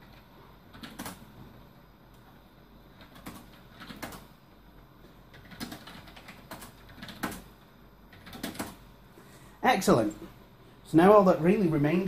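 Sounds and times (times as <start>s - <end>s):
keyboard keys clicking: 0.7s - 1.2s, 3.0s - 4.3s, 5.3s - 7.5s, 8.1s - 8.8s.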